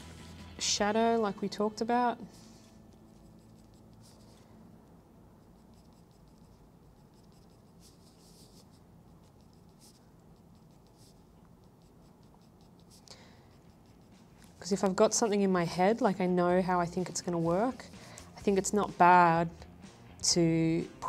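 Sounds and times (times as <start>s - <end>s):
pencil scratching on paper: 2.2s - 4.5s, 5.4s - 15.8s, 16.6s - 19.0s.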